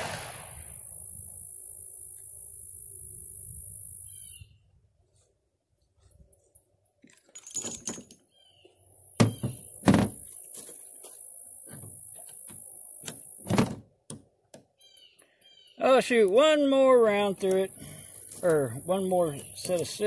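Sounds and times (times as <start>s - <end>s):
steady high hiss: 0.0s - 4.1s.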